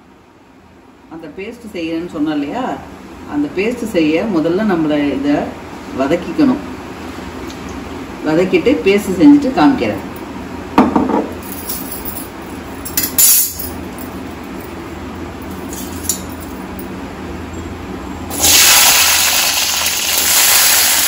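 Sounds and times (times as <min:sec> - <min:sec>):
shallots sizzling in hot oil: 0:18.3 - 0:21.0.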